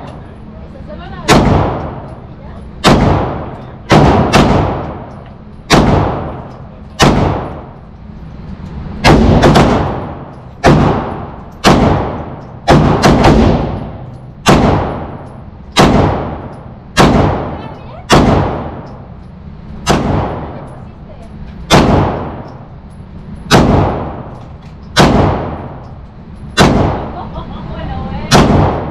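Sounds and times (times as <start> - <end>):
handgun shots echoing: 2.8 - 7.8, 9.0 - 19.0, 19.8 - 20.7, 21.7 - 22.6, 23.5 - 27.1, 28.3 - 28.9.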